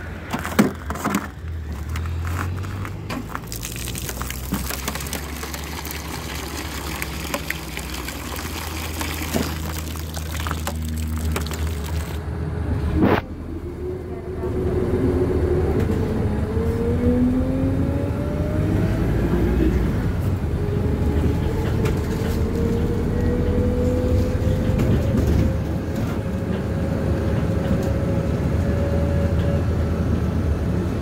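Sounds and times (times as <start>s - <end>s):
bus engine rumble and whine: 0.0s - 3.5s, 12.2s - 31.0s.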